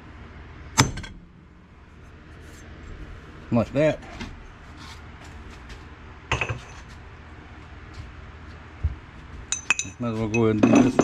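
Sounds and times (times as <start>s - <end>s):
metal tools clinking: 9.5s - 11.0s.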